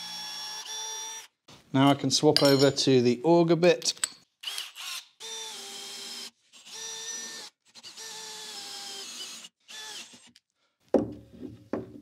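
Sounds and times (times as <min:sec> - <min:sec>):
drill whining into wood: 0:00.0 - 0:01.3, 0:04.4 - 0:10.4.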